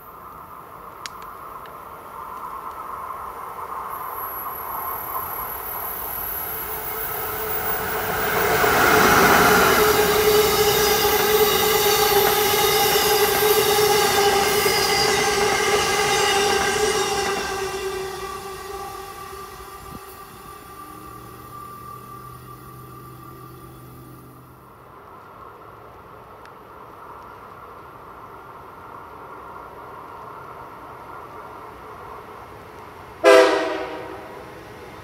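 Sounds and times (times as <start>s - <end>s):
train passing at speed: 0.0s - 35.0s
train wheels squealing: 3.9s - 24.5s.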